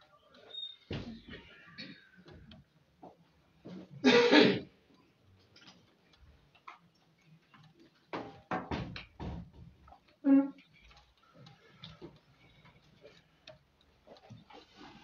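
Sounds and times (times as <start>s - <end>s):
faint clicks and rustles: 0.0s - 4.0s, 4.7s - 15.0s
person clearing throat: 4.0s - 4.7s.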